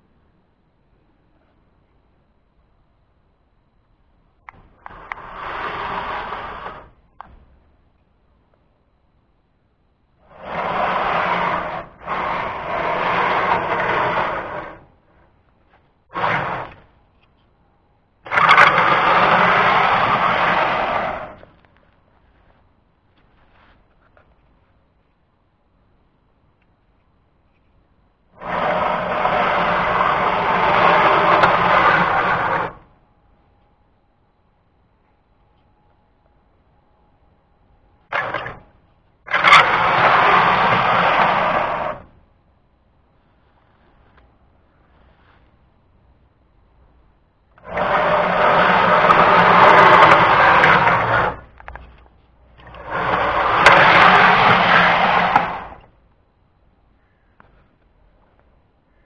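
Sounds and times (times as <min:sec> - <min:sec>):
electric motor of model train: 0:04.8 - 0:07.0, 0:10.2 - 0:14.9, 0:16.1 - 0:16.9, 0:18.2 - 0:21.5, 0:28.4 - 0:32.9, 0:38.1 - 0:38.7, 0:39.3 - 0:42.2, 0:47.6 - 0:51.8, 0:52.5 - 0:55.9.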